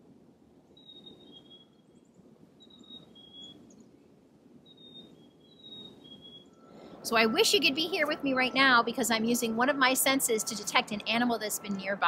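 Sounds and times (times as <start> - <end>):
chickadee whistled song: 2.6 - 3.6, 4.7 - 7.8.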